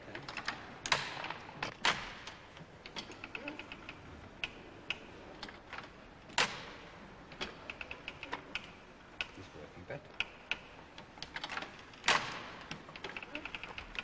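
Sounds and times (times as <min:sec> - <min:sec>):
sewing machine clicking and knocking: 0:10.2 - 0:14.0.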